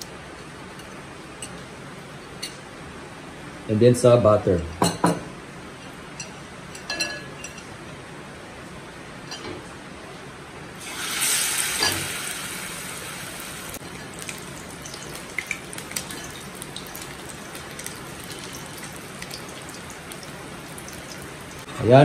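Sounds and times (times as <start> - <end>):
fish sizzling in hot oil: 10.8 - 21.7.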